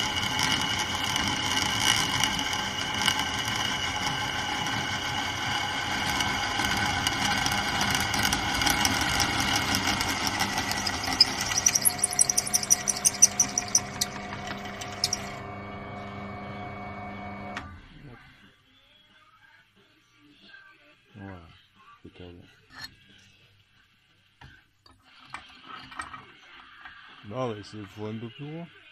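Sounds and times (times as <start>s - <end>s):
drill bit squeaking on metal: 0.0s - 4.2s, 5.9s - 15.4s
drill press motor running: 0.0s - 17.6s.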